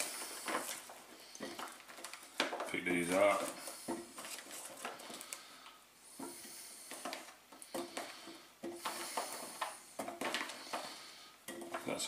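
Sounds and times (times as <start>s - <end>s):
potatoes knocking into pot: 6.2s - 12.0s.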